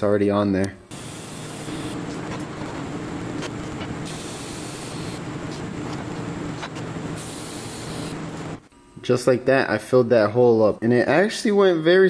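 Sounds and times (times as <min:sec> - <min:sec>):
welding arc buzzing hiss: 0:00.9 - 0:09.1.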